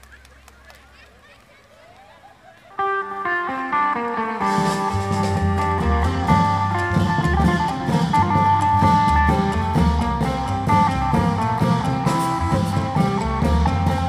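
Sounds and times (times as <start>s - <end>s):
plucked electric lute melody: 2.8s - 14.0s
drums and cymbals: 4.4s - 14.0s
heavy bass line: 4.4s - 14.0s.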